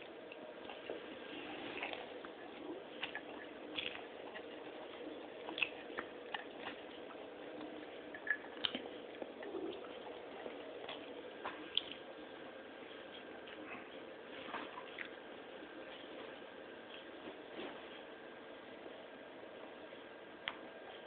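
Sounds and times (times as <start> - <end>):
faint steady hum: 0.0 - 21.0
pets eating wet smacks: 0.3 - 12.1.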